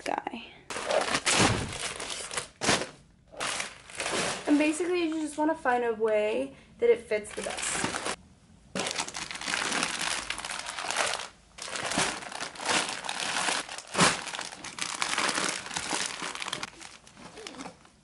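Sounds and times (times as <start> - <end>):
plastic bags crinkling and rustling: 0.7 - 5.4, 7.3 - 18.0.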